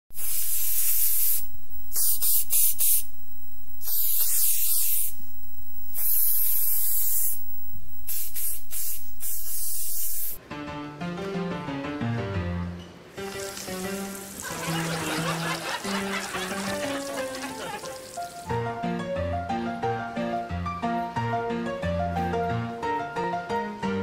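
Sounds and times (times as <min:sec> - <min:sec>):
loud static hiss: 0:00.1 - 0:10.6, 0:13.1 - 0:19.0
music: 0:10.4 - 0:24.0.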